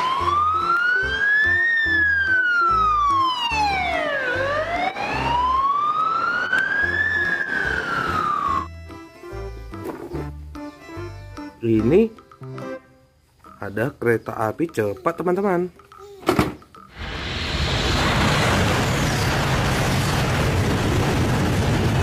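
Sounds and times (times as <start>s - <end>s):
toy ambulance siren wailing: 0.0s - 8.7s.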